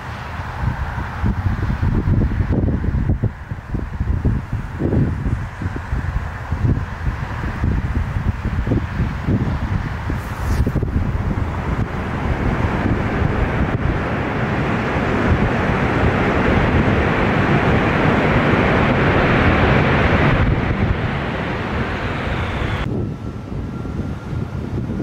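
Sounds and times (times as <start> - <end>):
jet engines roaring: 0.0 - 25.0
hiss of spray on wet runway: 3.2 - 22.8
faint high whine: 10.1 - 25.0.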